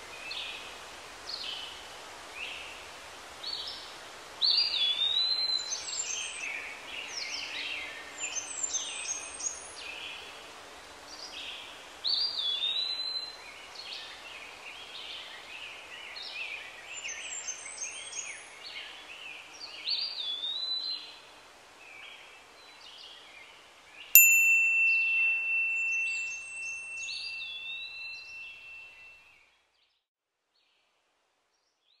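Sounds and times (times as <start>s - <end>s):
songbirds chirping: 22.0s - 29.1s
bell-like chime ringing: 24.2s - 29.1s.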